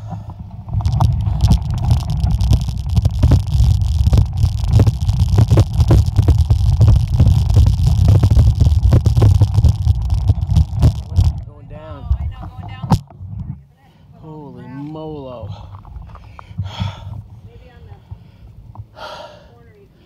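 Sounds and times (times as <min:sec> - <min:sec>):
bike tyres on loose gravel: 0:00.0 - 0:13.0
bike rattling: 0:00.0 - 0:13.6, 0:15.2 - 0:18.4
wind rumble on microphone: 0:00.0 - 0:13.6.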